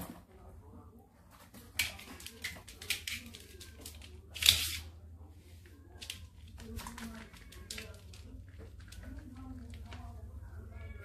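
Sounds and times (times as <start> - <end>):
cat scratching in litter: 6.0 - 10.3.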